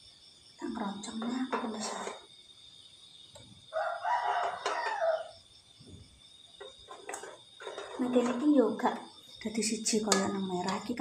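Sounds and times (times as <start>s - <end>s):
rooster crowing: 3.7s - 5.4s.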